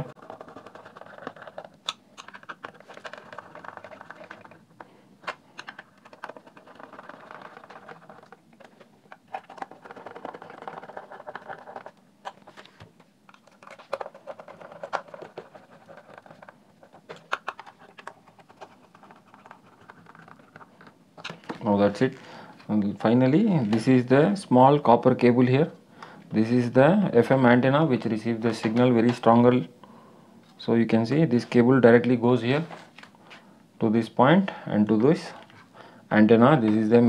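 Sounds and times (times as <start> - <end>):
hands handling plastic parts: 0.0 - 23.9.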